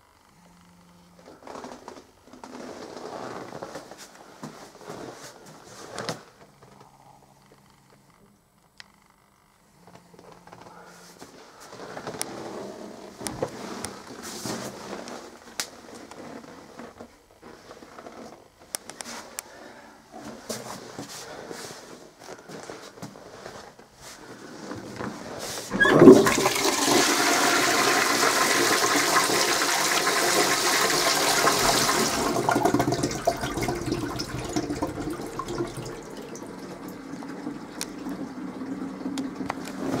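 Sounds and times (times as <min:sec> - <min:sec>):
toilet flushing: 0:25.7 - 0:40.0
water running as bowl refills: 0:25.7 - 0:40.0.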